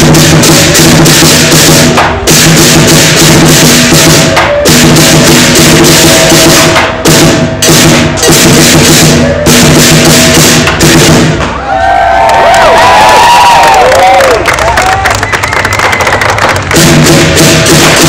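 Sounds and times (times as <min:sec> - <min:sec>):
big drum beating: 0:00.0 - 0:11.6, 0:16.5 - 0:18.0
cymbals clashing: 0:00.0 - 0:11.6, 0:16.8 - 0:18.0.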